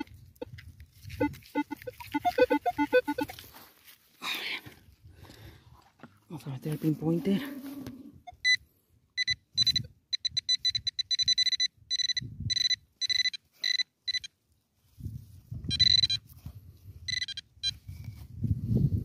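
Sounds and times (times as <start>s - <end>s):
metal detector beeping: 0.0s - 0.5s, 1.2s - 3.4s, 8.3s - 8.6s, 9.2s - 14.3s, 15.6s - 16.4s, 17.0s - 17.9s
soil rustling: 0.0s - 8.1s.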